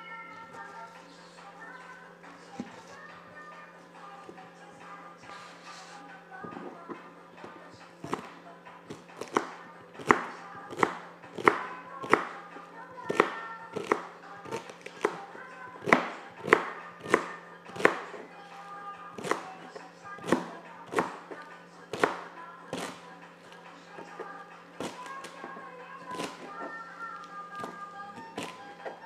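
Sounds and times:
knife chopping on cutting board: 8.0s - 12.5s, 13.1s - 18.2s, 19.2s - 23.0s, 24.8s - 26.8s, 27.6s - 29.0s.

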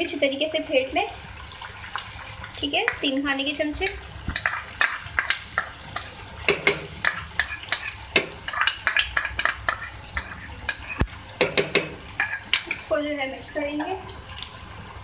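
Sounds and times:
chicken sizzling in oil: 0.0s - 15.0s
oil crackling: 1.2s - 15.0s
metal spoon scraping pan: 4.4s - 12.9s.

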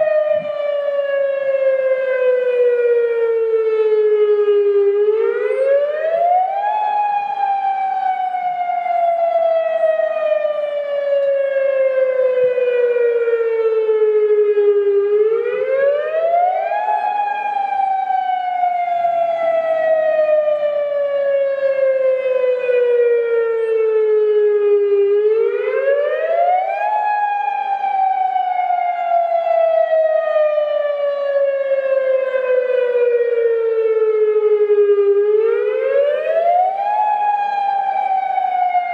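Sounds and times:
electronic siren wailing: 0.0s - 38.9s.

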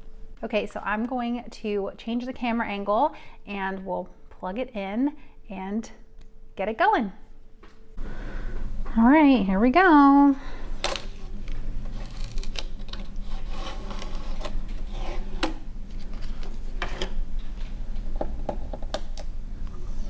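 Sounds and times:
tape peeling off plastic: 10.8s - 17.1s
packing pieces rustling: 10.9s - 13.2s.

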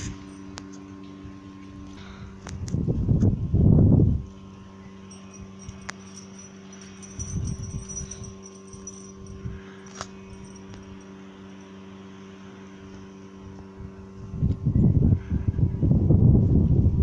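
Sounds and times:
steady low hum: 0.0s - 17.0s
wind buffeting microphone: 14.3s - 17.0s.

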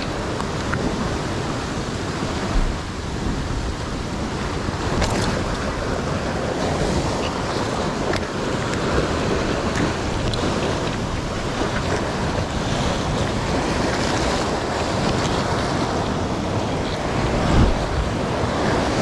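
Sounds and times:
ocean surf breaking on rocks: 0.0s - 19.0s
wind buffeting microphone: 0.0s - 19.0s.

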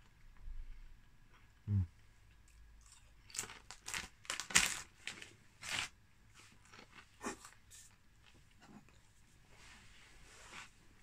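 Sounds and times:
crisp packet crinkling: 3.2s - 5.9s.

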